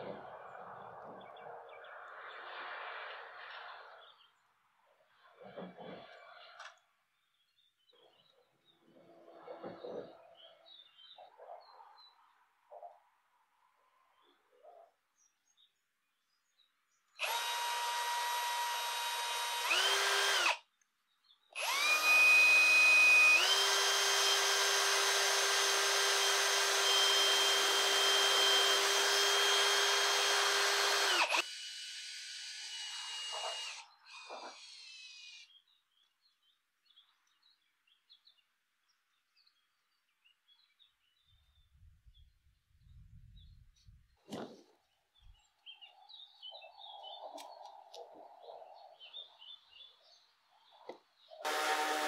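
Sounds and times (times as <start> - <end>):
faint birdsong: 0.0 - 31.3, 32.8 - 51.5
electric drill whining: 17.2 - 20.6, 21.6 - 35.5, 51.4 - 52.0.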